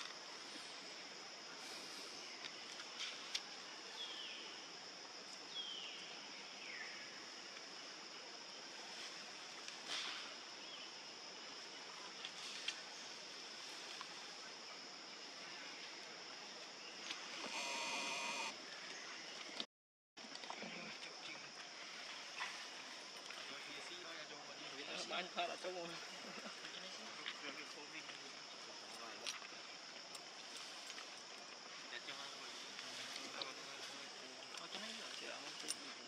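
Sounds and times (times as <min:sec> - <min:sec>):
high-pitched hiss: 0:00.0 - 0:19.3.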